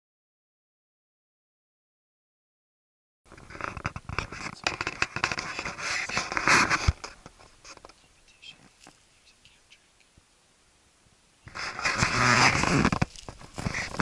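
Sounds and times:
hands rustling gear and clothing: 0:11.5 - 0:14.0.

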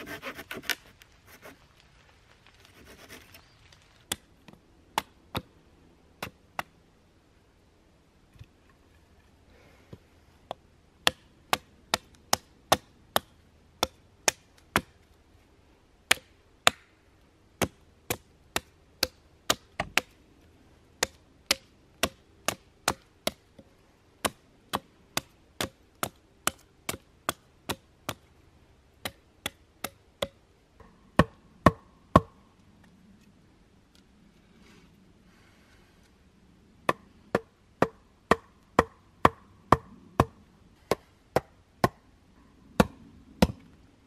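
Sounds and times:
hatchet chopping wood: 0:11.0 - 0:15.0, 0:16.1 - 0:16.9, 0:17.6 - 0:20.2, 0:21.0 - 0:28.3, 0:29.0 - 0:32.4, 0:36.9 - 0:42.0, 0:42.8 - 0:43.6.

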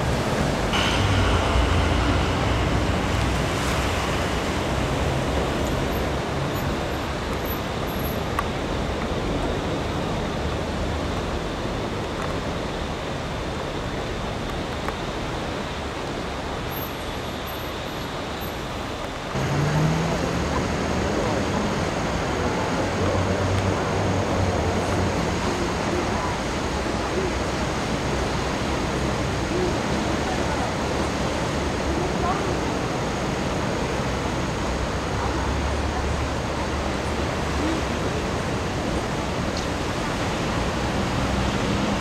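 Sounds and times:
low rumble: 0:00.0 - 0:06.5
river water rushing: 0:00.0 - 0:14.1, 0:18.8 - 0:42.0.

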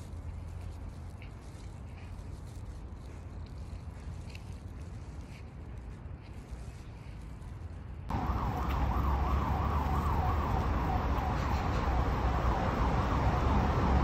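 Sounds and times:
siren wailing: 0:08.1 - 0:14.0.

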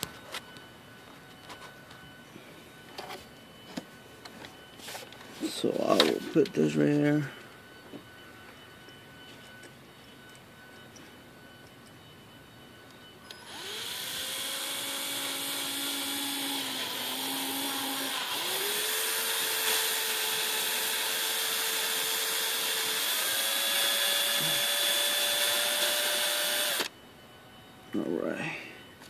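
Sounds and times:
power drill whining: 0:13.2 - 0:26.9.

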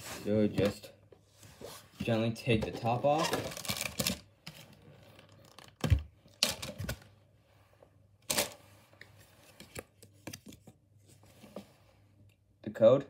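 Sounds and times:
rustling of packs: 0:02.8 - 0:07.1.

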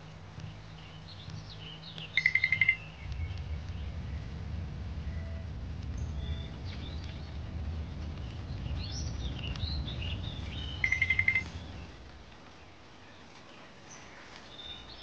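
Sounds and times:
low rumble: 0:00.0 - 0:12.9
high chirping calls: 0:00.4 - 0:04.0, 0:08.3 - 0:12.0.

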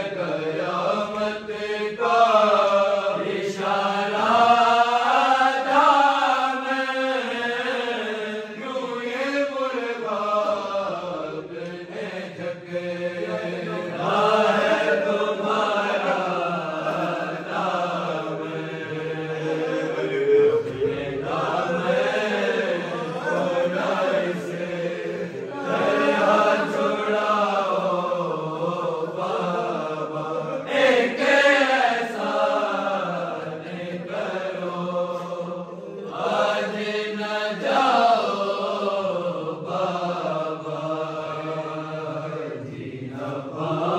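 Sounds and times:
men chanting a lament: 0:00.0 - 0:43.9.

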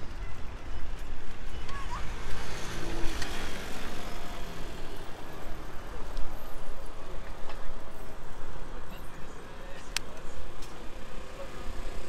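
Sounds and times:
road noise: 0:00.0 - 0:12.0.

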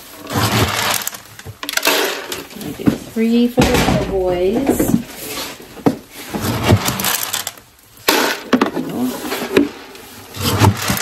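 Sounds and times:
metal scoop scraping feed pellets: 0:00.0 - 0:02.4
pellets pouring into plastic pan: 0:00.0 - 0:02.6, 0:03.2 - 0:11.0.

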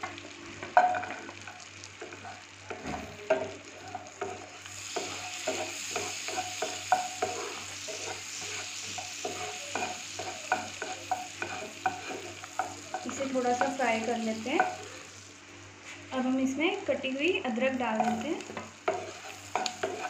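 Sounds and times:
garlic sizzling in butter: 0:00.0 - 0:20.0
wooden spatula scraping a pan: 0:03.8 - 0:14.9, 0:18.0 - 0:20.0.

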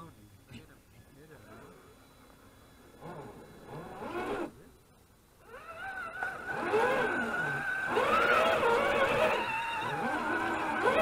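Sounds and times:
electric motor and gearbox whining: 0:02.2 - 0:04.7, 0:05.4 - 0:11.0.

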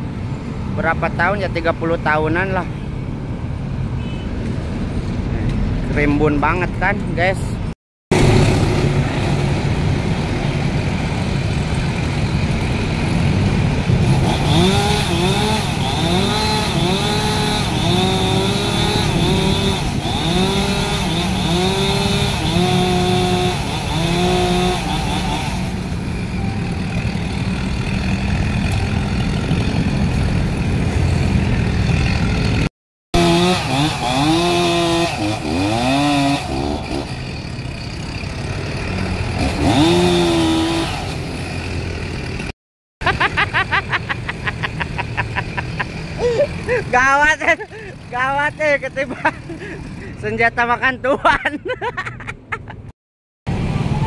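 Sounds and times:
chainsaw revving: 0:11.8 - 0:25.9, 0:31.8 - 0:42.5, 0:44.6 - 0:48.4, 0:49.0 - 0:50.2.

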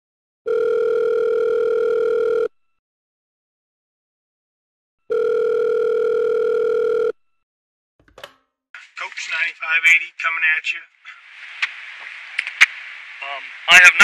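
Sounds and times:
telephone ringback tone: 0:00.5 - 0:02.5, 0:05.1 - 0:07.2.

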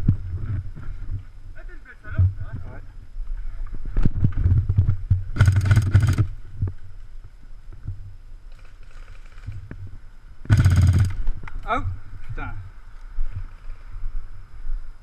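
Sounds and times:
rustling of brush and gear: 0:02.4 - 0:11.6
airsoft rifle bursts: 0:05.4 - 0:06.3, 0:10.5 - 0:11.2.

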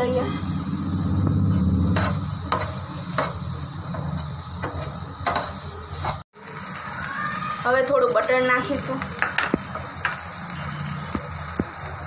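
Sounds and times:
food sizzling on hot pan: 0:00.0 - 0:12.0
spatula scraping pan: 0:00.1 - 0:06.2.

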